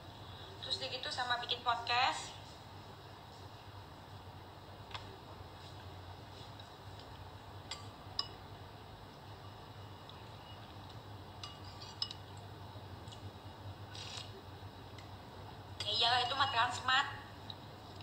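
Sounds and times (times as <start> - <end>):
metal spoon clinking on dish: 7.7 - 8.4, 11.4 - 12.3.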